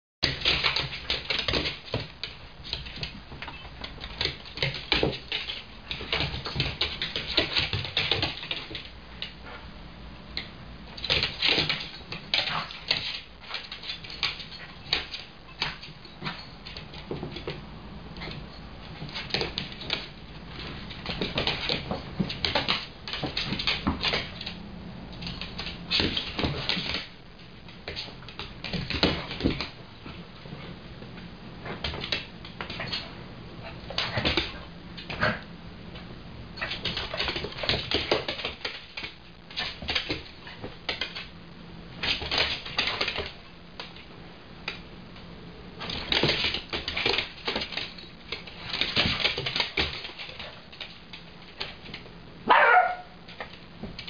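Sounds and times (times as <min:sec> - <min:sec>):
dog claws clicking on wooden floor: 0:00.2 - 0:09.4, 0:10.4 - 0:17.6, 0:19.0 - 0:27.2, 0:36.6 - 0:41.3, 0:42.0 - 0:44.1, 0:45.8 - 0:52.1
dogs play noises: 0:27.8 - 0:41.3.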